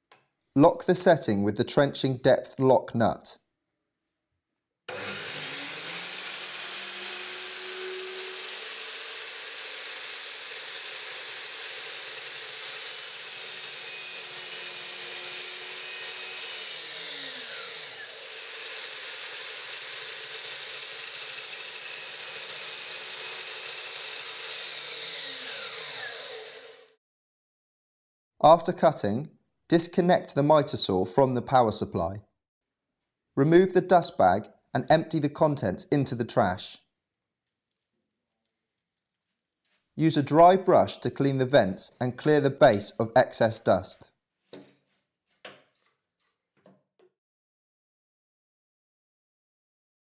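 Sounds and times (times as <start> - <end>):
mitre saw motor running: 4.9 - 27.0
saw blade cutting wood: 4.9 - 27.0.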